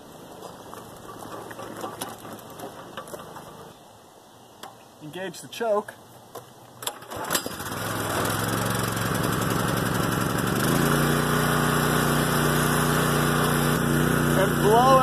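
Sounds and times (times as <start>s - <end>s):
small engine running: 6.9s - 15.0s.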